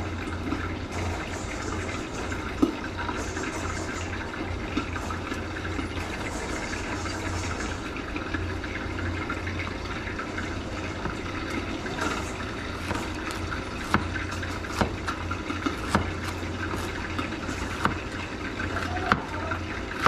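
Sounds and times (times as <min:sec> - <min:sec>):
knife chopping on plastic board: 0:12.8 - 0:16.9, 0:17.7 - 0:18.0.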